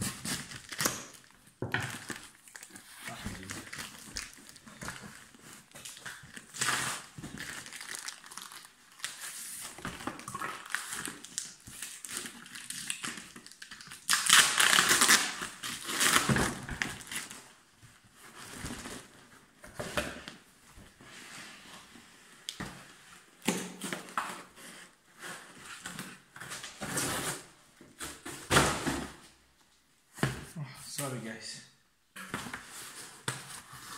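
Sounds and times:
tape and plastic wrap crinkling: 0:00.0 - 0:17.6.

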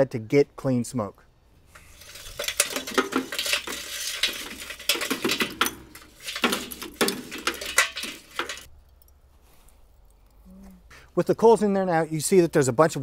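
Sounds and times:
charcoal clattering into firebox: 0:01.7 - 0:08.7.

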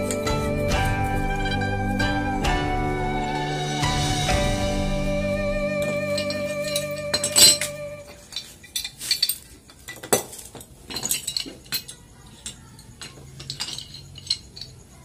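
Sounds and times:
pipe wrenches clinking on metal pipe: 0:06.0 - 0:14.9.

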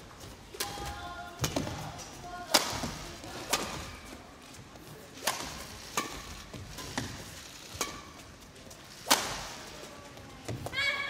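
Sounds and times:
rackets striking shuttlecock: 0:02.5 - 0:04.0, 0:05.2 - 0:08.3, 0:09.0 - 0:09.6.

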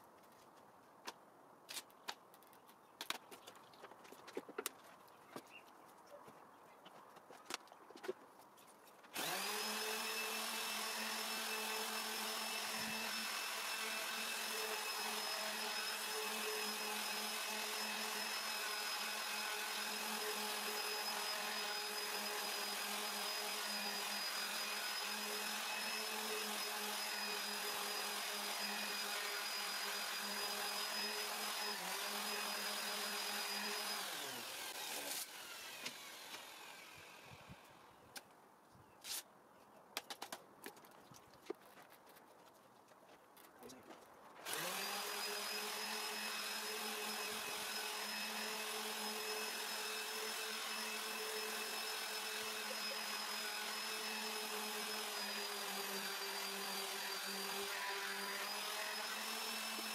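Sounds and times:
electric disc sander running: 0:09.2 - 0:37.7, 0:44.4 - 0:59.9.

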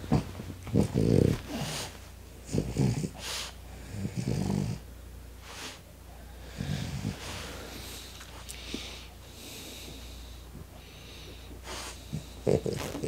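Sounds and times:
dog snoring: 0:00.0 - 0:04.9, 0:06.5 - 0:07.6, 0:11.7 - 0:13.0.

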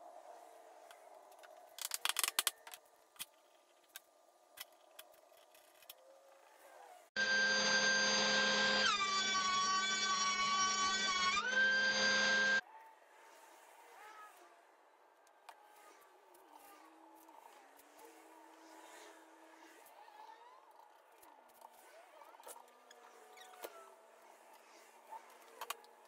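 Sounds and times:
thickness planer whining: 0:06.8 - 0:12.6.

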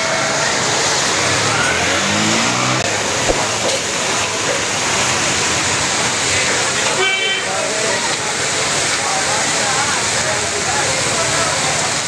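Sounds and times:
street noise: 0:00.0 - 0:12.0
engine revving: 0:00.6 - 0:04.6
sharp click: 0:03.3 - 0:03.8.

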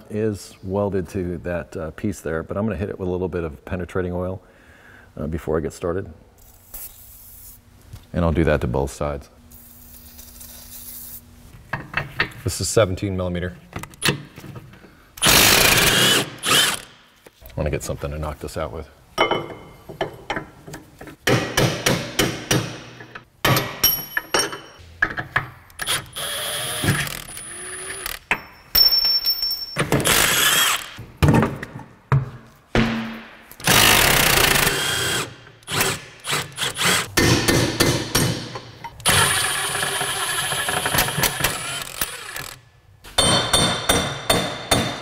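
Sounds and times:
power tool running: 0:15.2 - 0:16.9, 0:25.8 - 0:28.2, 0:30.0 - 0:31.0, 0:33.6 - 0:37.1, 0:39.0 - 0:42.6.

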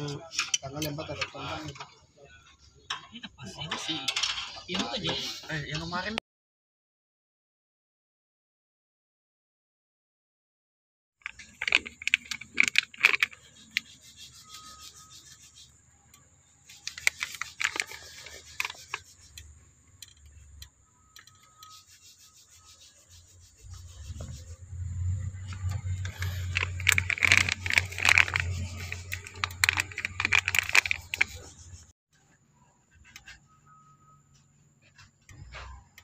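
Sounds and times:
plastic bag crinkling: 0:11.2 - 0:13.4, 0:16.8 - 0:19.0, 0:25.9 - 0:31.5.

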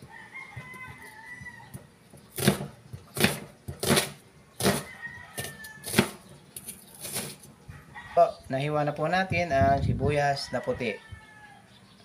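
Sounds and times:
cleaver chopping on cutting board: 0:02.3 - 0:06.2.

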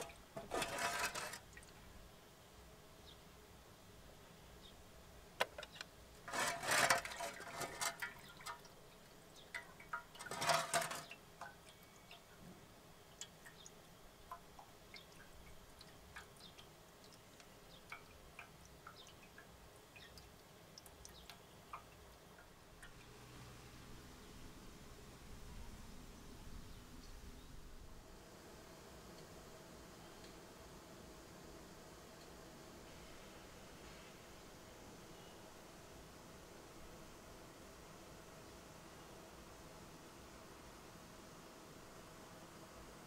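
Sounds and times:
liquid dripping: 0:07.1 - 0:12.4, 0:13.0 - 0:23.3.

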